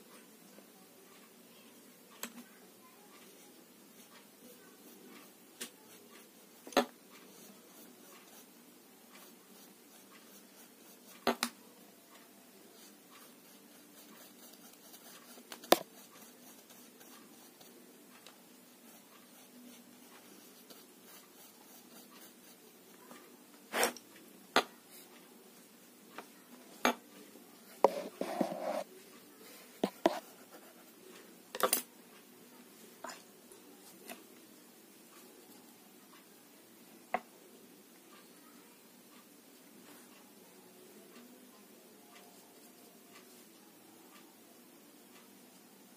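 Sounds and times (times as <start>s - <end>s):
faint room hiss: 0.0s - 45.9s.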